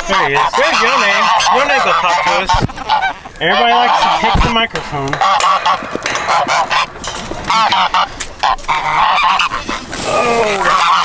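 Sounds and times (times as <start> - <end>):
geese honking: 0.0 - 11.0
clicks and knocks: 4.0 - 9.6.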